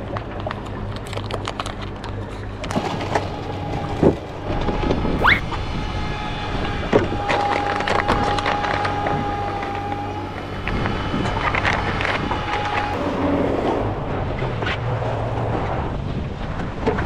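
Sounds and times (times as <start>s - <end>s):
short rising squeak: 5.2s - 5.5s
steady high tone: 5.2s - 5.5s.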